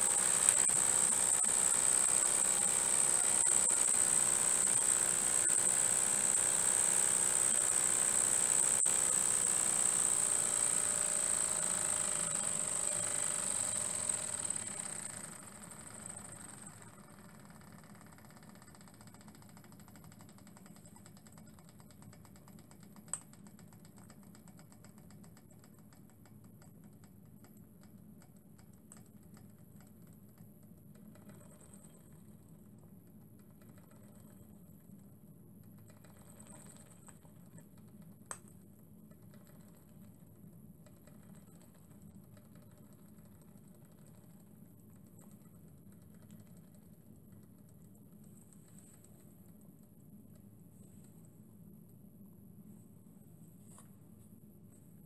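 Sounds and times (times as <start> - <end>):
sharp clicks: 0.0 - 16.9
model steam engine clicking: 0.0 - 20.7.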